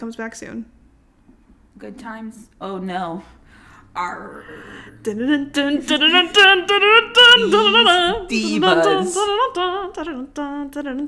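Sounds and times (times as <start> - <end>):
lower voice singing: 4.0 - 11.0
woman singing unaccompanied: 4.0 - 11.0.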